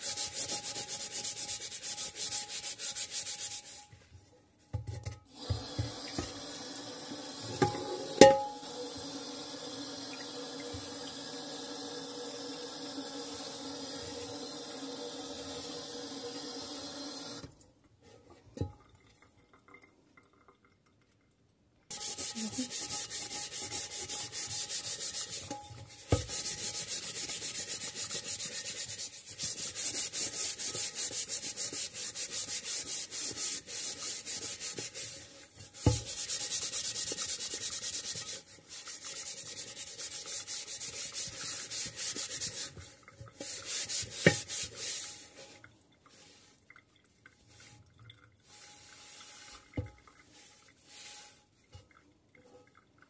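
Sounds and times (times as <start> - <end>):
cloth scrubbing a pan: 0.0 - 4.1, 21.9 - 52.8.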